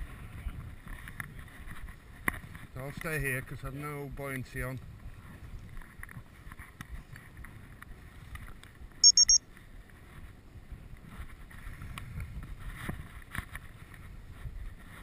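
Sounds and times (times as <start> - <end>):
wind buffeting microphone: 0.0 - 9.0, 9.7 - 15.0
short high-pitched electronic beeps: 9.0 - 9.4.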